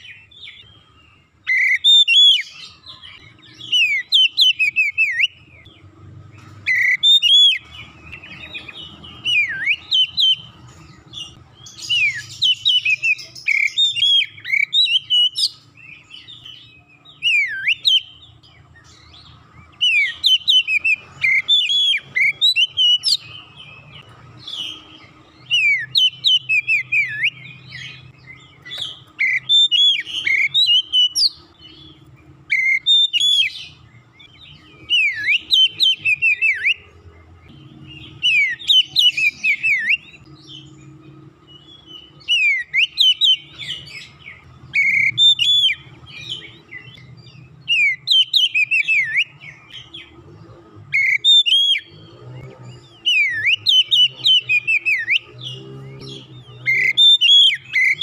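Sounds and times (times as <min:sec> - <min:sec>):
bird singing whistled phrases: 0:01.4 - 0:05.7, 0:06.7 - 0:10.6, 0:11.2 - 0:18.3, 0:19.1 - 0:31.9, 0:32.5 - 0:36.9, 0:41.6 - 0:50.1, 0:52.9 - 0:55.4, 0:56.0 - 0:58.0.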